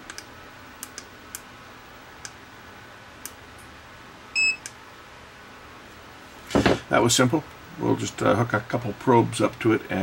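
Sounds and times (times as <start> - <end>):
multimeter high beep: 4.3 - 4.7.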